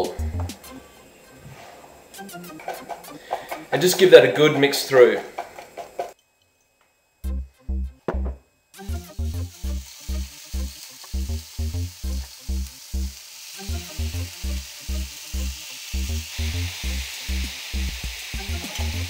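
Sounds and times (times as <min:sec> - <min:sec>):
background music with low beat: 0:00.0 - 0:04.8, 0:07.2 - 0:19.0
chicken sizzling on griddle: 0:08.8 - 0:19.0.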